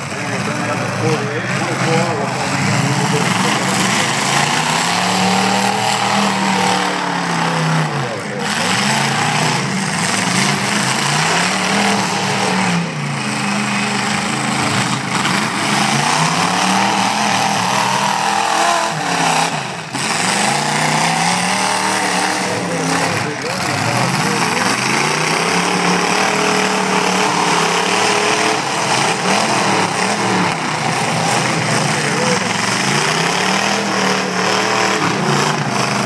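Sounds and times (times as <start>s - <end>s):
truck engines revving hard: 0.0s - 36.0s.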